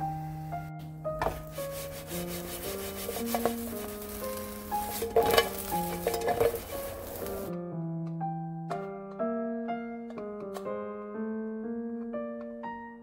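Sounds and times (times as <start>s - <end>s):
soft piano music: 0.0s - 13.0s
food scraping in frying pan: 1.4s - 7.5s
light sizzle: 1.4s - 7.6s
pan clatters: 2.6s - 7.5s.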